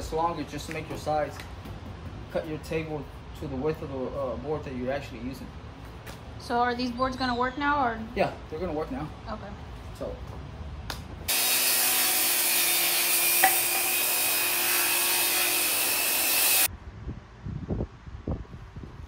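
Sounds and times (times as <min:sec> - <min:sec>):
circular saw cutting wood: 0:11.3 - 0:16.7.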